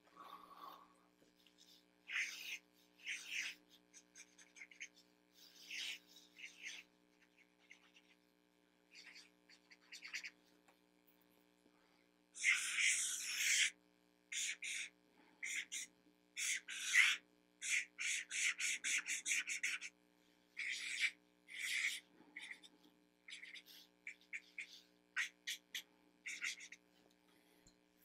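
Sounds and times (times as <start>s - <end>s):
marker squeaking on paper: 1.6s - 8.2s, 8.9s - 10.4s, 14.4s - 19.9s, 20.6s - 22.7s, 23.3s - 26.8s.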